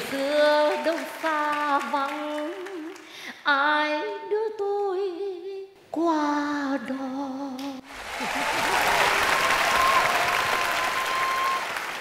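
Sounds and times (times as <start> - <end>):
audience applause: 7.9 - 12.0.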